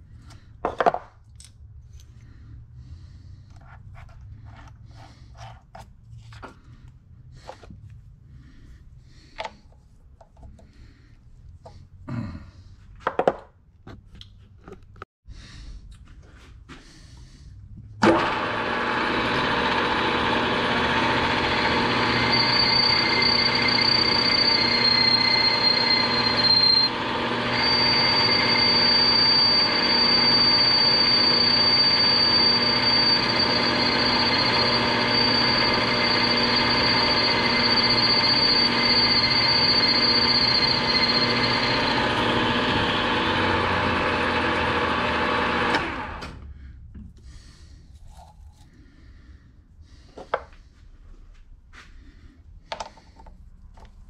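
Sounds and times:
drilling machine boring metal: 18.0s - 46.4s
thin high whine: 21.2s - 42.9s.

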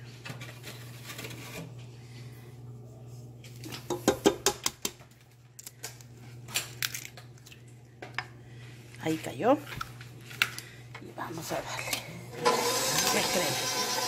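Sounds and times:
steady low hum: 0.0s - 12.5s.

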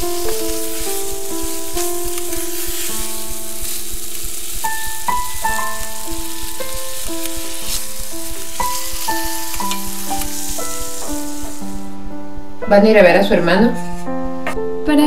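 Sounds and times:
eggs and bacon sizzling: 0.0s - 12.0s
background keyboard music: 0.0s - 15.0s.

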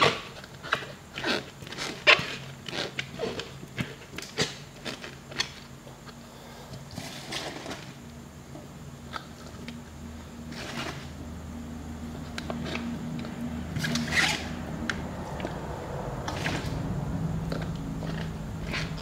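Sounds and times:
bamboo shoots crunching in jar: 17.4s - 19.0s.

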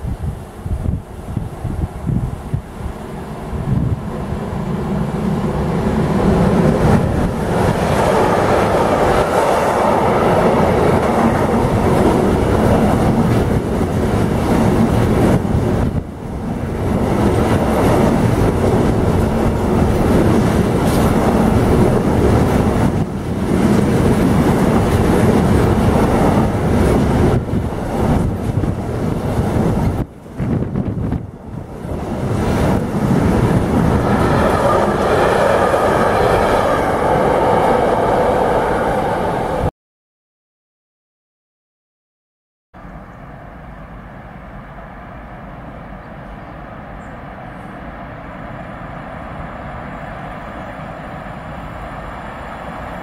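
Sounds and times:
freight train wheels rumbling on rails: 0.0s - 39.7s.

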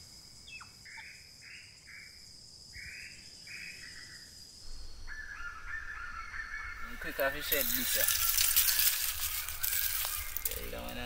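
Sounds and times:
high insect drone: 0.0s - 11.0s
short raspy calls: 5.1s - 10.7s.

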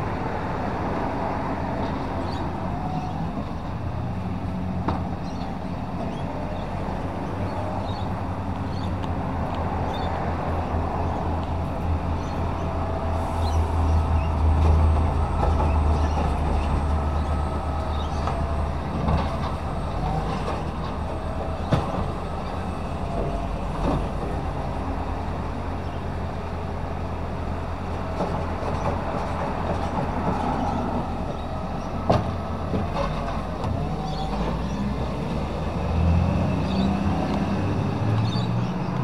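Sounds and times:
garbage truck running: 10.2s - 38.8s.

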